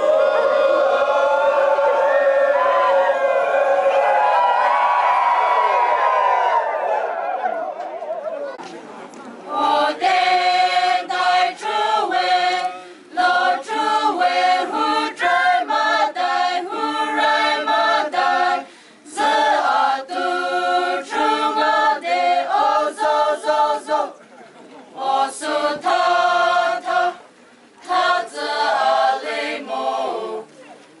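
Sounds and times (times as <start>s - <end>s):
group singing without instruments: 9.5s - 24.2s, 25.0s - 30.5s.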